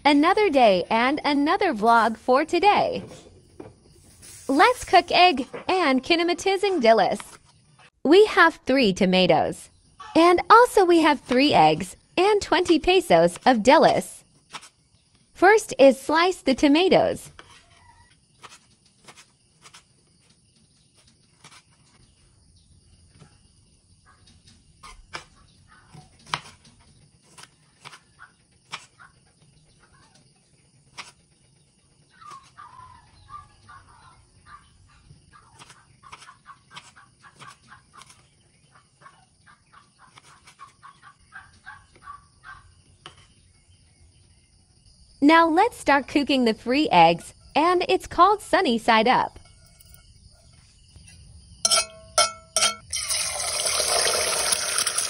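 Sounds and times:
knife cutting tomatoes: 0:18.4 - 0:19.9, 0:35.5 - 0:38.3.

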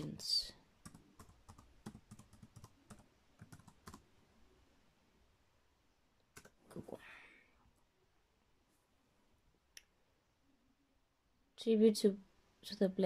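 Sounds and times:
typing on laptop keyboard: 0:00.8 - 0:04.0, 0:06.3 - 0:06.8.

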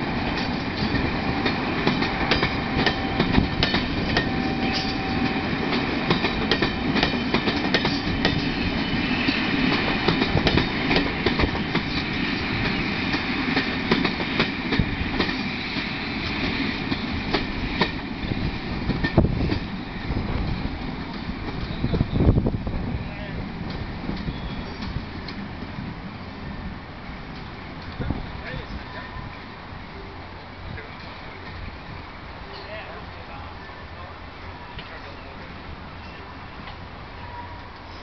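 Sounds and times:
train coaches rumbling past: 0:00.0 - 0:38.0.

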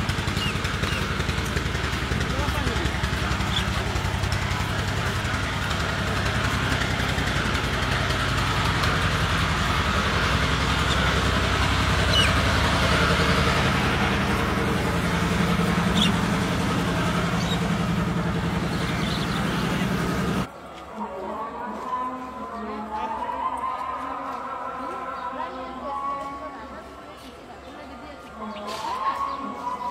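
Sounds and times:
low engine drone: 0:00.0 - 0:20.5.

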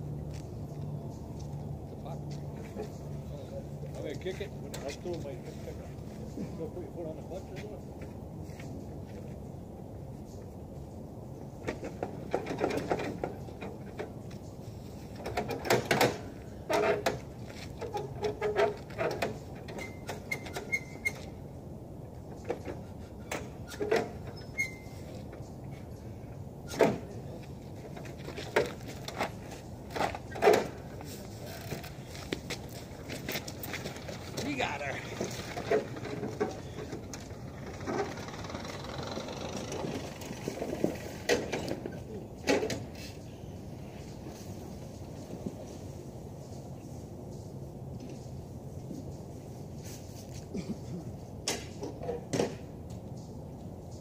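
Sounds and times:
low outdoor background noise: 0:00.0 - 0:54.0
knocks and clatter of a mower: 0:11.5 - 0:21.4, 0:22.1 - 0:26.0, 0:26.6 - 0:43.2, 0:51.3 - 0:54.0.

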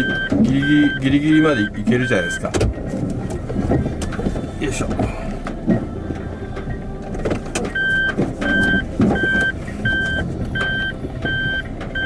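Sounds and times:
reverse warning beeping: 0:00.0 - 0:02.5, 0:07.7 - 0:12.0
low rumble of car creeping: 0:00.0 - 0:12.0.

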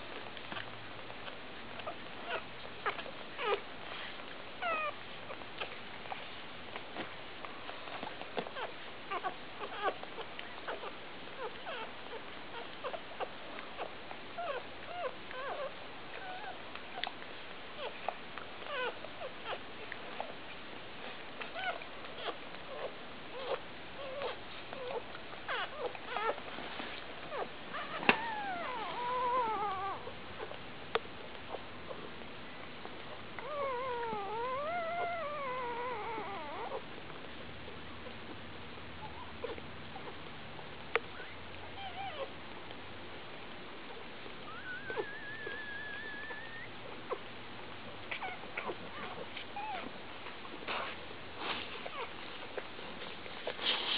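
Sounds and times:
puppy wavering cry: 0:01.8 - 0:03.6, 0:04.6 - 0:05.4, 0:08.5 - 0:17.1, 0:17.8 - 0:19.6, 0:21.5 - 0:26.4, 0:27.3 - 0:30.6, 0:33.4 - 0:36.8, 0:39.0 - 0:40.2, 0:41.1 - 0:42.3, 0:44.4 - 0:47.3, 0:48.1 - 0:49.9
puppies squeaking: 0:01.8 - 0:06.3, 0:07.8 - 0:17.1, 0:17.8 - 0:20.4, 0:21.5 - 0:30.6, 0:33.0 - 0:36.9, 0:39.0 - 0:40.3, 0:41.0 - 0:42.3, 0:44.0 - 0:47.3, 0:48.1 - 0:50.0, 0:51.7 - 0:52.7.

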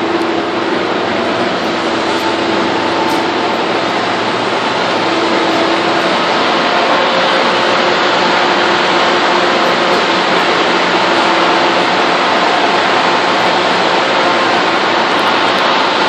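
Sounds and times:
faint hum: 0:00.0 - 0:16.0
loud machinery roar: 0:00.0 - 0:16.0.

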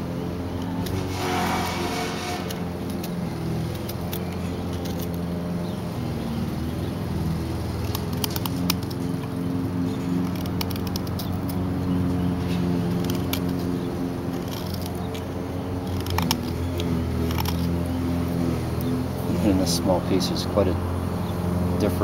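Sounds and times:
lawn mower engine droning: 0:00.0 - 0:22.0
knife clicks shaving a stick: 0:07.8 - 0:09.4, 0:10.1 - 0:11.6.

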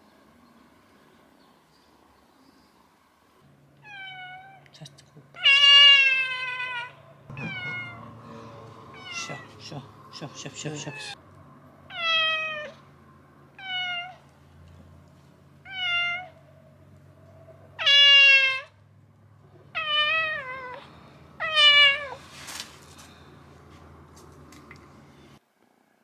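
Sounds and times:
cat meowing: 0:03.8 - 0:04.7, 0:05.4 - 0:08.2, 0:08.9 - 0:09.6, 0:11.9 - 0:12.8, 0:13.5 - 0:14.2, 0:15.6 - 0:16.4, 0:17.8 - 0:18.8, 0:19.7 - 0:22.2.

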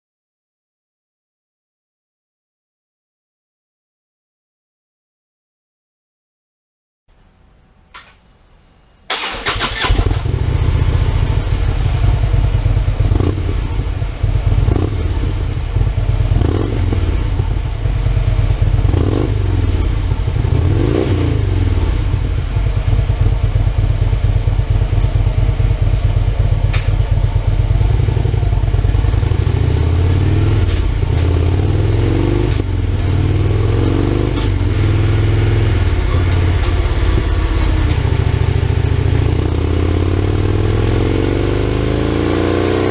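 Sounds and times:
motorcycle engine revving: 0:09.1 - 0:42.9.

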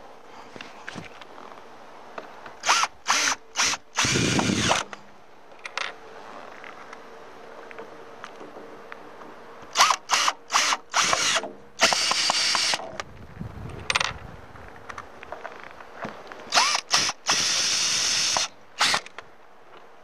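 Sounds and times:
cordless drill driving screws: 0:02.6 - 0:05.0, 0:09.7 - 0:12.8, 0:16.5 - 0:19.1.

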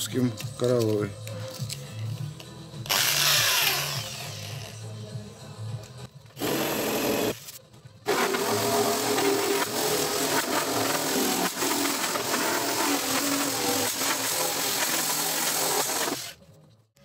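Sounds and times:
drill motor hum: 0:02.9 - 0:04.7, 0:08.1 - 0:16.4.

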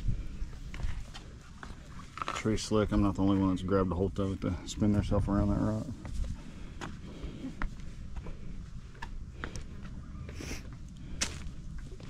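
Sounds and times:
footsteps on rock: 0:10.7 - 0:12.0.

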